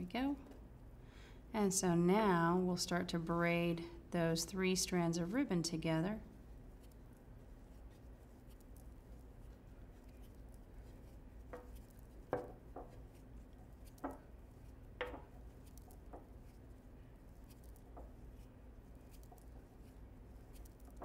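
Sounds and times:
low room hum: 0.0 - 21.0
ribbon rustling: 6.6 - 21.0
soft handling taps: 11.4 - 13.2, 15.0 - 16.3.

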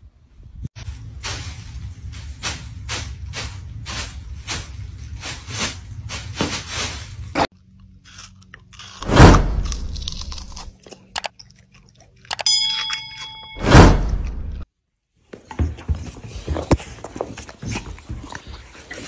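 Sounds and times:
dog crunching watermelon: 7.5 - 12.5, 15.8 - 19.0
short chime: 12.4 - 14.6
dog chewing: 15.8 - 19.0.

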